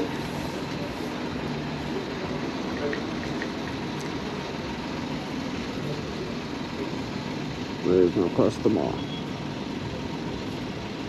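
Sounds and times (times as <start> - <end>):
traffic hum and hiss: 0.0 - 11.0.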